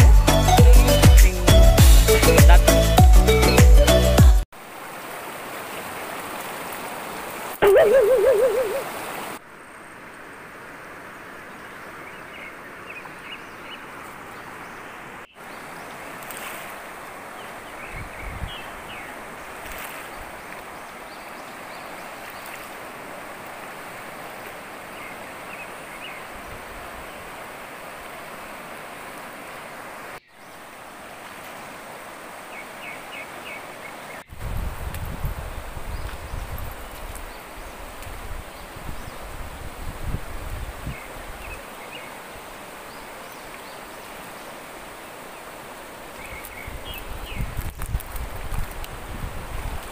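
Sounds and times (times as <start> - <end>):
river rushing over rocks: 4.6 - 9.4, 18.7 - 34.3, 41.0 - 47.5.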